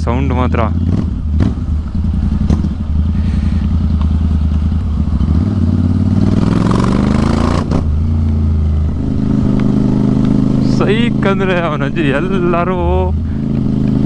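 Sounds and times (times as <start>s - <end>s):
motorcycle engine accelerating: 0.0s - 14.0s.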